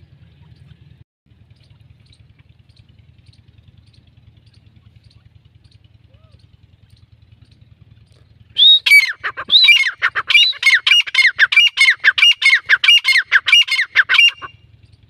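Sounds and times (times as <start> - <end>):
francolin calling: 8.6 - 15.0.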